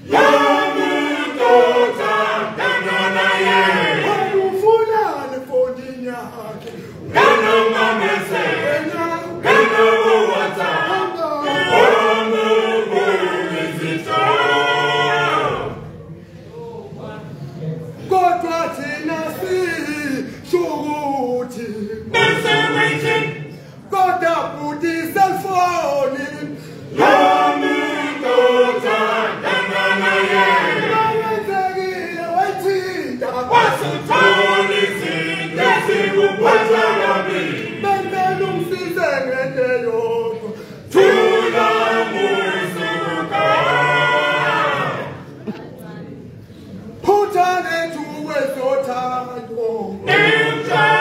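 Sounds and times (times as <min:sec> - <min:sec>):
male choir singing: 0:00.0 - 0:05.8, 0:07.1 - 0:15.8, 0:20.2 - 0:23.5, 0:25.0 - 0:45.3, 0:49.6 - 0:51.0.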